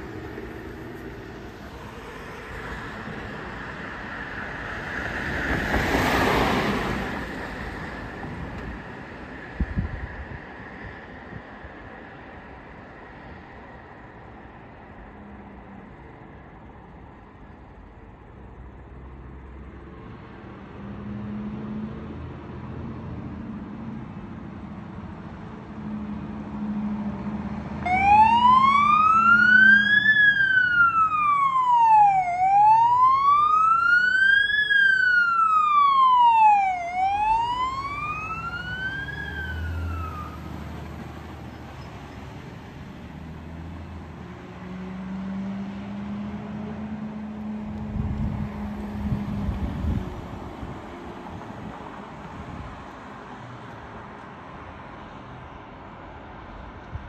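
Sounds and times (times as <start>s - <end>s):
wailing siren: 27.8s - 40.9s.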